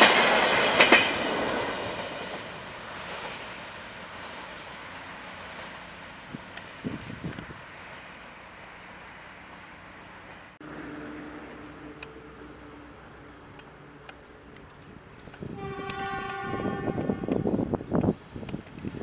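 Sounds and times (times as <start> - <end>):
low engine hum: 5.1 - 15.4
locomotive horn blast: 15.4 - 17.8.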